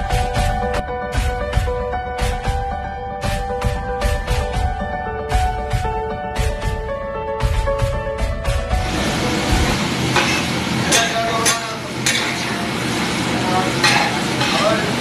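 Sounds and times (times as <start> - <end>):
vegetables frying on griddle: 8.8 - 15.0
metal spatula scraping: 10.1 - 12.6
spatula clanking on griddle: 10.1 - 12.7, 13.8 - 15.0.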